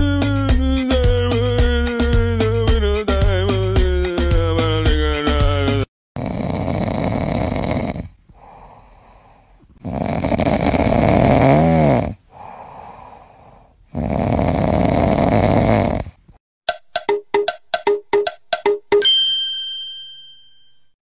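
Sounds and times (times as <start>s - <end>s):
cat snoring: 6.2s - 16.4s
cat breathing: 8.3s - 9.8s, 12.0s - 15.1s.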